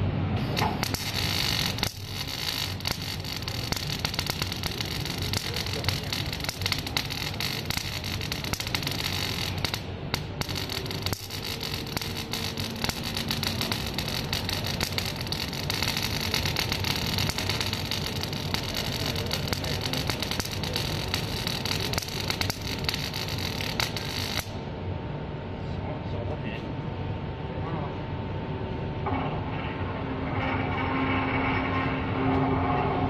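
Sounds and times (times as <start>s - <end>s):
welding arc crackling: 0.4s - 24.7s.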